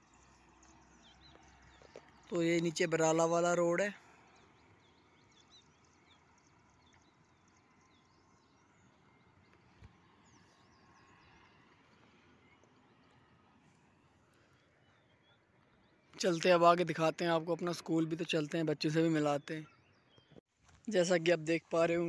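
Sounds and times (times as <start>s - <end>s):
faint bird chirps: 17.5s - 20.4s.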